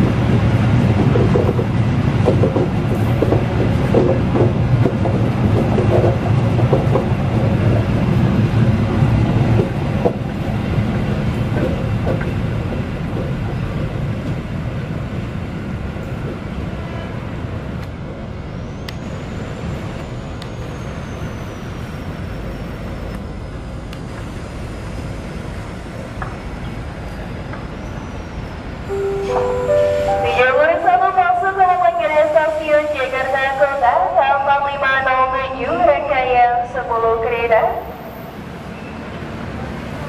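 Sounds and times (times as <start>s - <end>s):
train carriages rumbling on rails: 0.0s - 40.0s.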